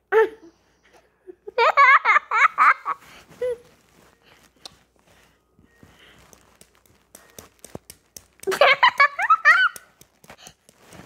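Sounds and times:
child giggling: 8.5s - 9.8s.

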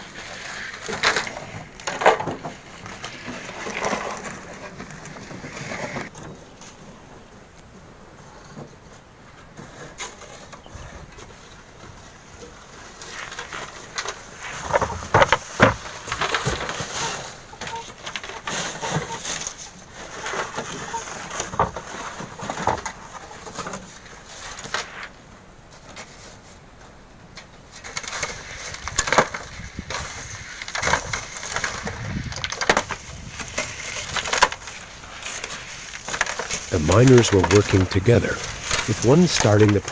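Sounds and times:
shovels scraping: 0.0s - 6.8s, 27.8s - 39.9s
stones against steel wheelbarrows: 0.0s - 6.9s, 9.6s - 25.1s, 27.7s - 39.9s.

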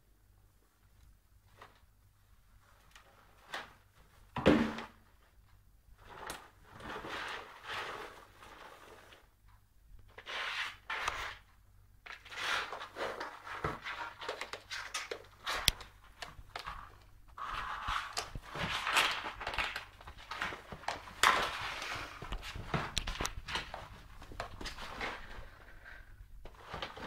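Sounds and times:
cardboard box scraping on tiles: 6.1s - 9.3s, 10.2s - 11.4s, 12.1s - 14.8s, 16.6s - 27.0s.

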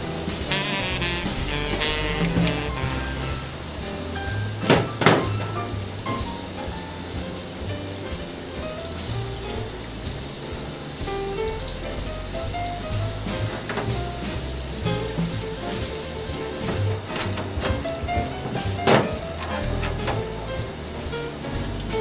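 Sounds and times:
water hissing from spray nozzle: 0.0s - 22.0s
sharp knocks: 0.2s - 9.2s, 12.0s - 22.0s.

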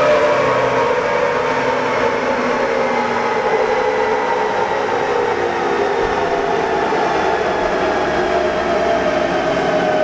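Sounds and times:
engine and dyno rollers whining: 0.0s - 10.0s.

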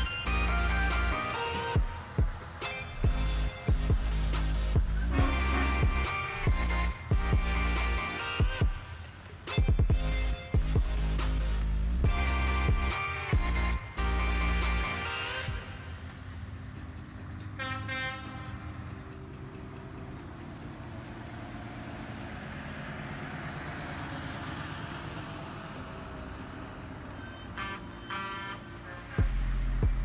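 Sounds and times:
heavy trucks diesel rumble: 0.0s - 30.0s
truck horn: 5.0s - 8.6s, 17.4s - 19.0s, 27.0s - 30.0s.

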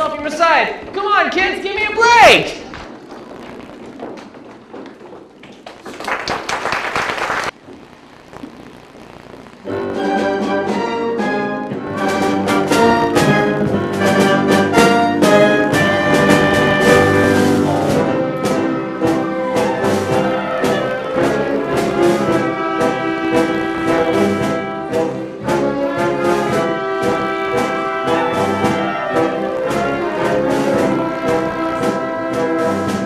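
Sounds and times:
brass-led orchestra playing show tune: 9.7s - 33.0s.

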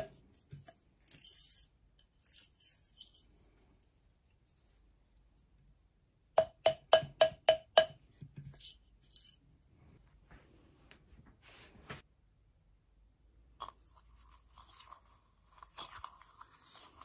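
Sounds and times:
faint metallic clinks: 0.6s - 4.0s, 8.4s - 9.6s
mallet striking metal wire: 6.4s - 8.0s.

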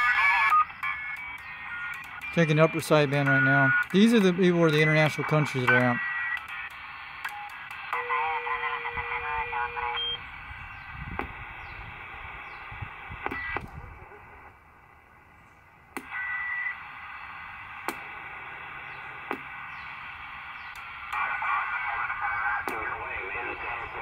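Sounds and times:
sharp clicks of radio knobs: 0.0s - 8.0s, 10.8s - 13.8s, 15.9s - 24.0s
radio static hiss: 0.0s - 24.0s.

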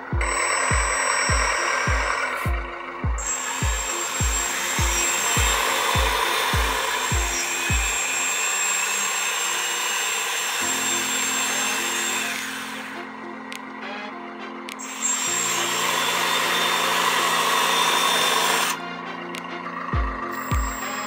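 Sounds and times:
background music with thumping beat: 0.0s - 8.0s, 18.0s - 21.0s
toy bulldozer motor whining: 0.2s - 13.2s, 14.8s - 18.8s, 19.6s - 21.0s.

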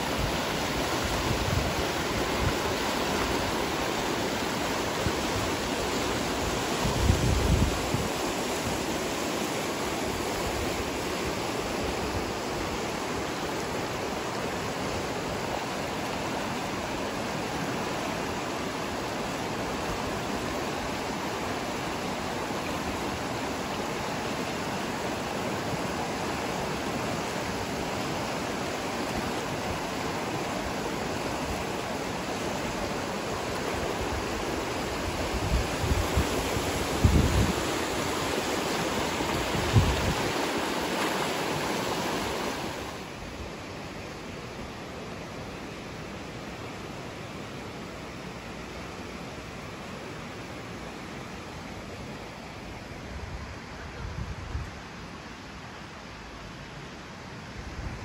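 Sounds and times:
river rushing over rapids: 0.0s - 58.0s.

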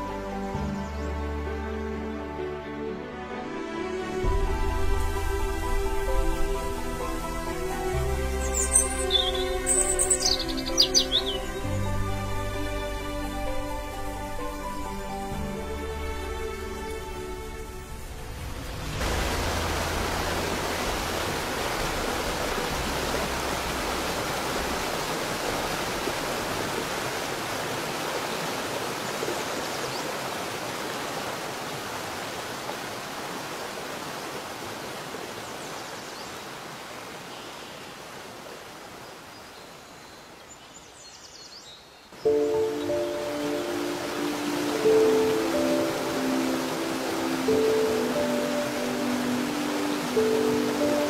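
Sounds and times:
waterfall roaring: 15.8s - 35.8s, 42.5s - 51.0s.

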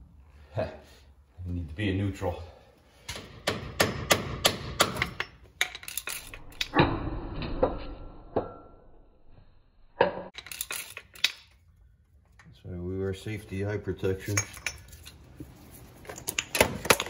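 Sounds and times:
metal hand tools clinking: 5.6s - 6.8s, 10.4s - 11.6s, 14.2s - 15.3s.

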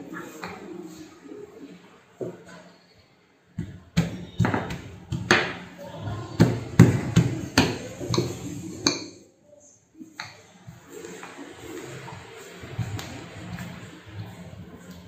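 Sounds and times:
rolling pin knocking: 3.6s - 5.6s
rolling pin rolling dough: 3.6s - 9.2s, 10.1s - 15.0s.

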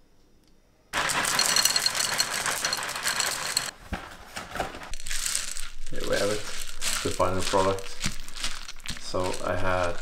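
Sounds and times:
cereal rattling into bowl: 1.0s - 3.7s, 5.0s - 10.0s.

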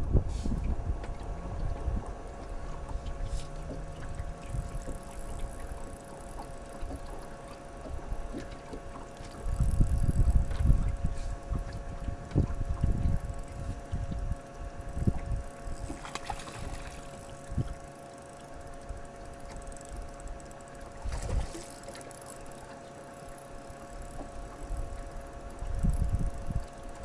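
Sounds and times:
wind rumbling on microphone: 0.0s - 17.8s, 20.9s - 21.7s, 24.2s - 27.0s
faint steady hum: 0.0s - 27.0s.

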